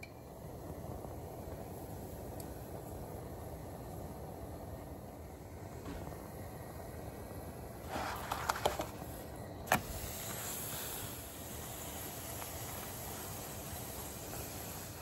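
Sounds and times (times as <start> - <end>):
flatbread frying in a pan: 0.0 - 15.0.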